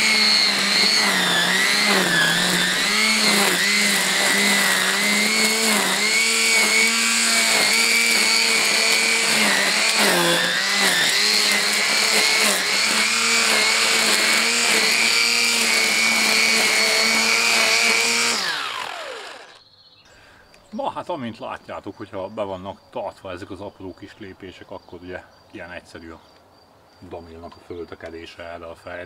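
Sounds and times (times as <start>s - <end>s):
grass trimmer cutting grass: 0.0s - 19.6s
trimmer motor whine: 0.0s - 19.6s.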